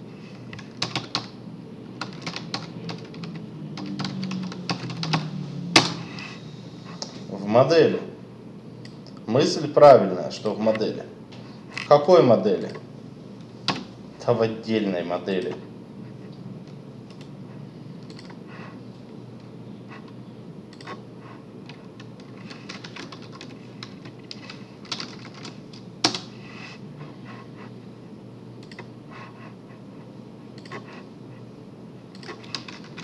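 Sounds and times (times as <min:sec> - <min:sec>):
computer keyboard typing: 0:00.5 - 0:01.4, 0:02.0 - 0:06.2, 0:18.0 - 0:18.4, 0:19.9 - 0:21.0, 0:21.6 - 0:26.4, 0:28.6 - 0:29.0, 0:30.6 - 0:31.0, 0:32.1 - 0:33.0.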